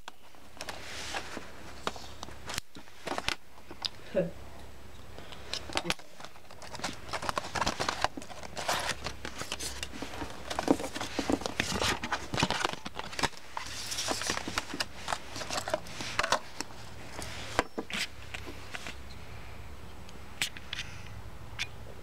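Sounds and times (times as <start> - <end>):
plastic packaging crinkling: 5.5 - 18.1.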